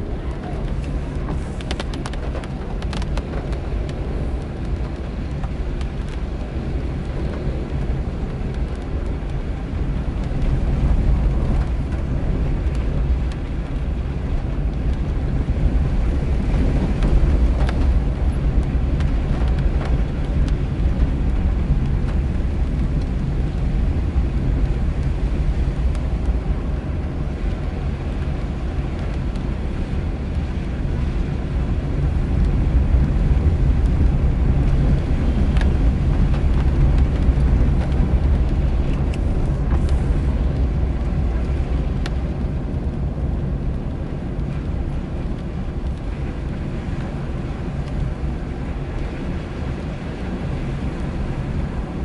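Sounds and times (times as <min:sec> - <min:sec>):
tyres hissing on wet road: 0:00.0 - 0:05.7, 0:23.2 - 0:43.6
car engine and tyres rumbling: 0:00.0 - 0:52.0.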